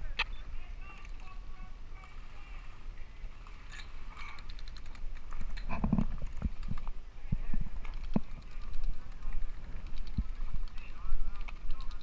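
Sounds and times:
sharp irregular clicks: 4.2s - 6.9s, 7.8s - 12.0s.

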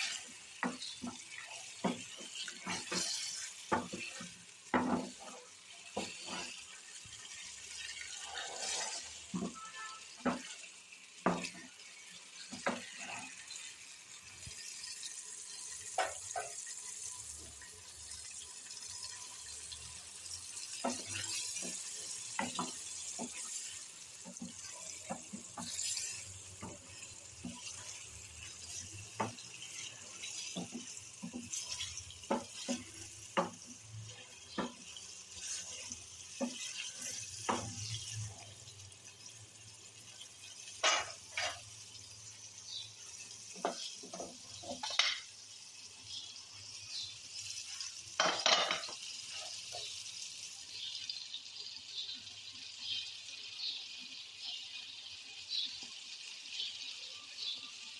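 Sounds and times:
wooden spatula scraping a pan: 0.0s - 16.8s, 18.9s - 39.2s, 40.2s - 41.7s, 43.4s - 45.2s
tomatoes sizzling in a pan: 0.0s - 57.9s.

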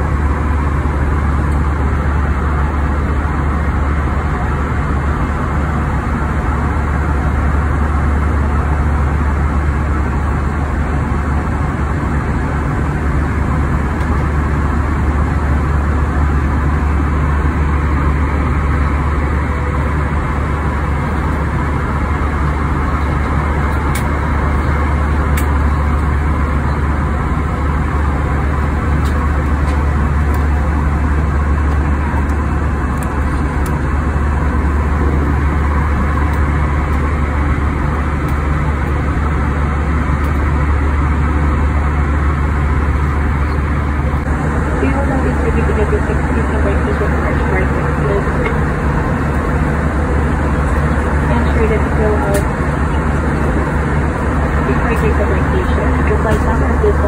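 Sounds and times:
jet airliner cabin drone: 0.0s - 57.0s.

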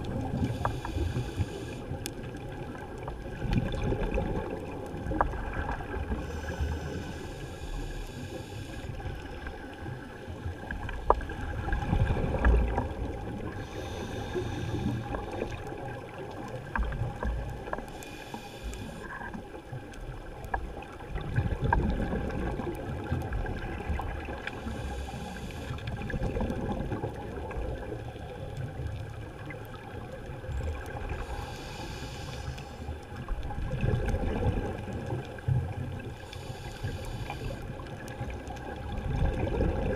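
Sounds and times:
low rumble of moving water: 0.0s - 39.9s
diver exhaling bubbles: 3.3s - 7.0s, 11.2s - 16.0s, 21.2s - 24.4s, 25.9s - 27.9s, 33.5s - 35.1s, 38.9s - 39.9s
faint clicks: 14.4s - 20.9s.

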